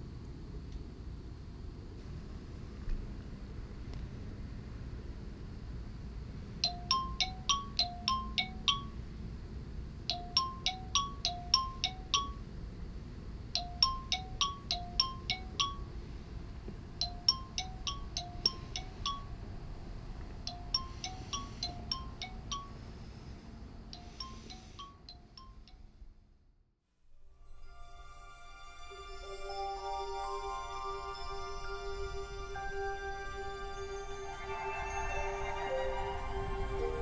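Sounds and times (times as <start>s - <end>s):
phone chime ringtone: 6.6s - 9.0s, 10.1s - 12.4s, 13.6s - 15.9s, 17.0s - 19.3s, 20.5s - 22.8s, 24.0s - 25.6s, 27.7s - 37.0s.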